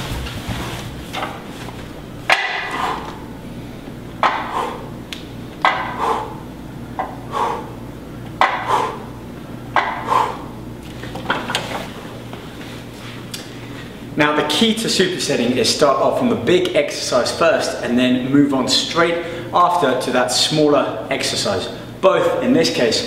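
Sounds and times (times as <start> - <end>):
weight machine arm clanking: 2.2 - 3.2, 4.2 - 4.8, 5.6 - 6.2, 8.4 - 8.9.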